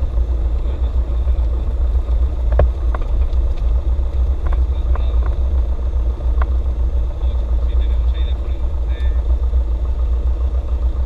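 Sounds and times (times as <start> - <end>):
propeller plane engine droning: 0.0 - 11.0.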